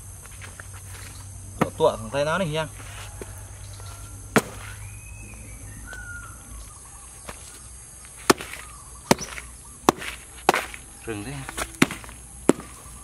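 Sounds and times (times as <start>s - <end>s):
faint bird calls: 1.1s - 13.0s
machete chopping wood: 1.6s - 1.9s, 4.3s - 4.9s, 8.2s - 10.9s, 11.5s - 13.0s.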